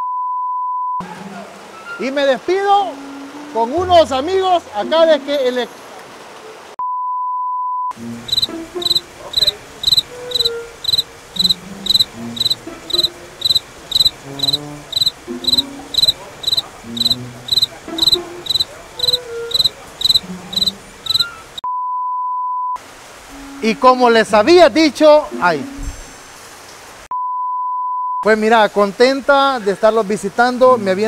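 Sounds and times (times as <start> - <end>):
cricket chirping: 8.2 - 21.6.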